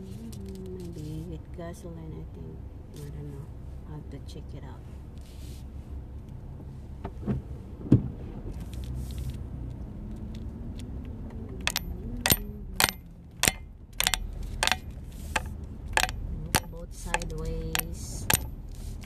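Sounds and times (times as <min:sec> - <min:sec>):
car engine hum and road noise: 0:00.0 - 0:19.0
turn signal clicking: 0:08.6 - 0:19.0.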